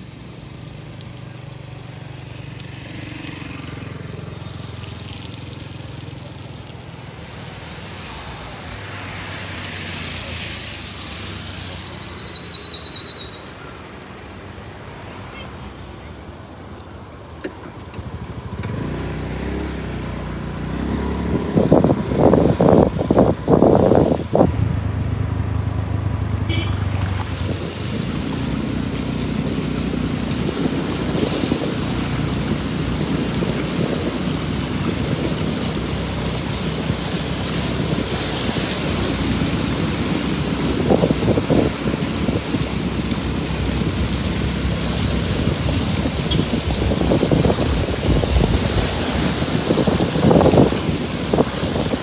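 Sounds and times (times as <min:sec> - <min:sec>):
water rushing under vehicle: 0:00.0 - 0:52.0
loud gusts of noise: 0:20.7 - 0:26.3, 0:30.0 - 0:52.0.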